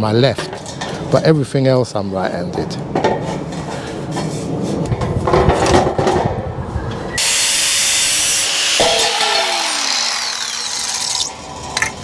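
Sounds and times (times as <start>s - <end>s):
angle grinder cutting metal: 7.2s - 11.8s.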